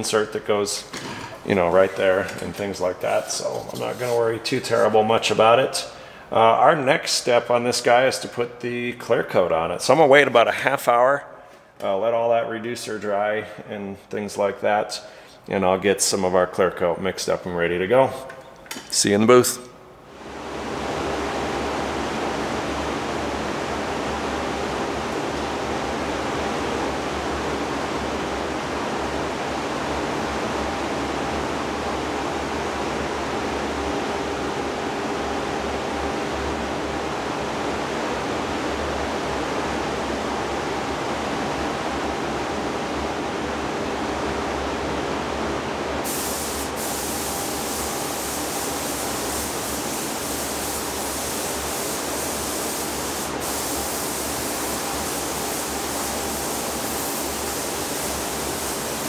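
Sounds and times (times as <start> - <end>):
ventilation rushing with faint hum: 0.0 - 59.0
spray gun hissing: 46.0 - 59.0.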